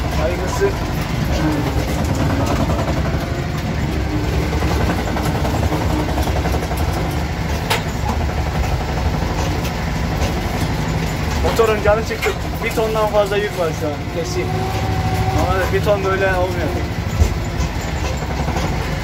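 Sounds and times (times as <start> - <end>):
leaf springs knocking: 0.0 - 13.4
tractor engine straining: 0.0 - 19.0.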